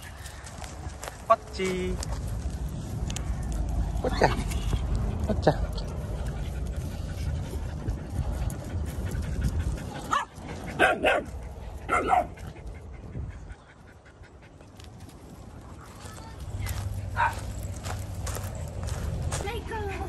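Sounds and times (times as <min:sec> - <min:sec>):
low rumble: 0:01.9 - 0:11.8
dog barking: 0:10.1 - 0:11.3, 0:11.9 - 0:12.4, 0:17.2 - 0:17.4.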